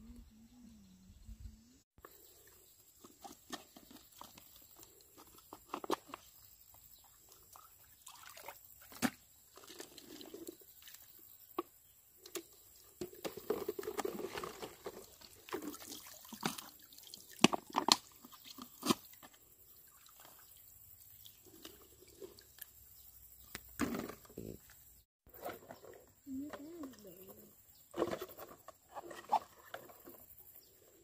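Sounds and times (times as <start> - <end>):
water dripping and splashing: 15.0 - 18.6.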